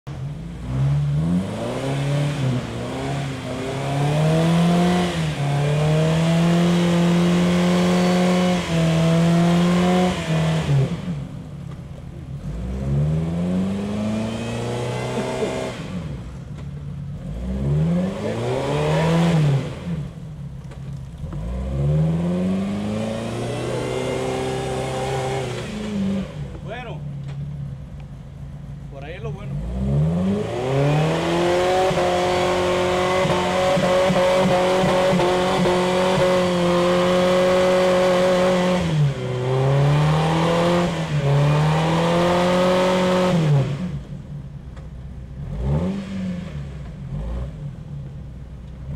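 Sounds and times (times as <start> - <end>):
engine revving hard: 0.6 - 11.2, 12.4 - 16.3, 17.2 - 20.1, 21.3 - 26.9, 29.5 - 44.1, 45.4 - 47.8
tyres churning through mud: 13.5 - 16.2.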